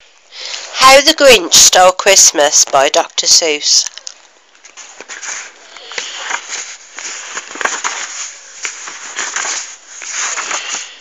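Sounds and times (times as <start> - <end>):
rustling crackle with clicks: 3.8 - 11.0.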